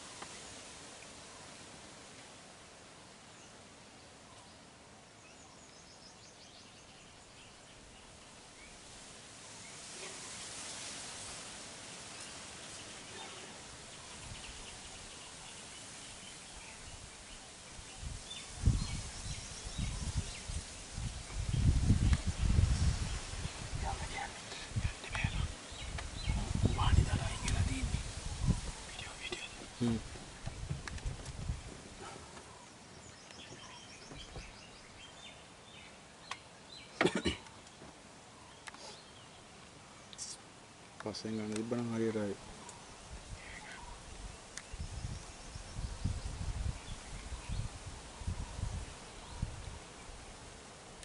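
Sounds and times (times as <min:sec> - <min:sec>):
bird and insect chirps: 0:03.2 - 0:30.7, 0:32.0 - 0:50.8
low thumps and rumbles: 0:29.6 - 0:32.0.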